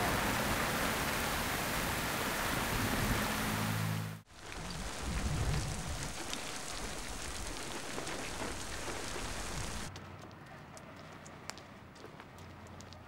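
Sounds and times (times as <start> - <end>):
steady rain hiss: 0.0 - 9.9.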